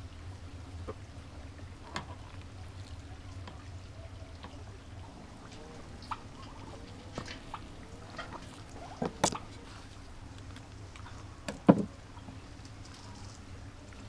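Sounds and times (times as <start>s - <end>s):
twine rustling and scraping: 12.6s - 14.0s.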